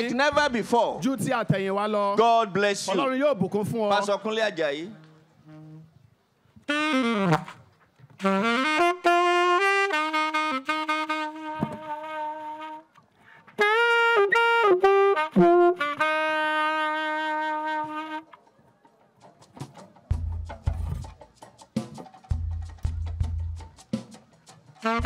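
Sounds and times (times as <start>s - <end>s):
solo saxophone melody: 4.9s - 18.4s, 24.8s - 25.0s.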